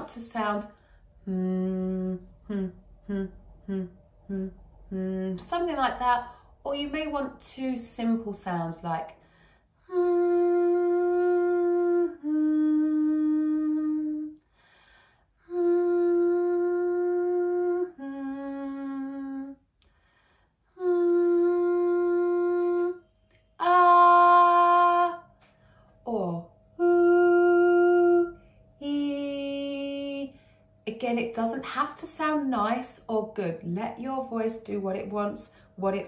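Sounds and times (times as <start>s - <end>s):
woman humming long notes: 1.2s - 5.6s, 9.8s - 14.4s, 15.4s - 19.7s, 20.7s - 23.0s, 23.6s - 25.2s, 26.1s - 30.4s.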